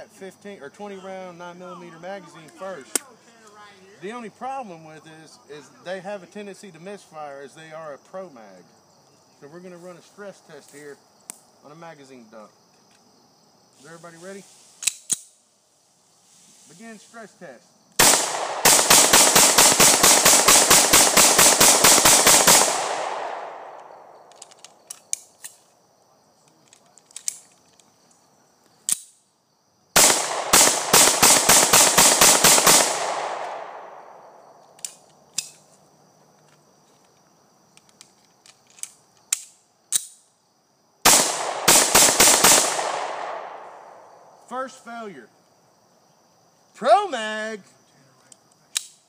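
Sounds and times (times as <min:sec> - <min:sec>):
pistol shots in rapid strings: 0:18.0 - 0:23.4, 0:30.0 - 0:33.5.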